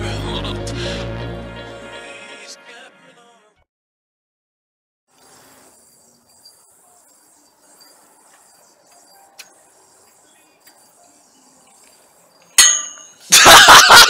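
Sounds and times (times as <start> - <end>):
metal yoyo clanging: 12.5 - 13.4.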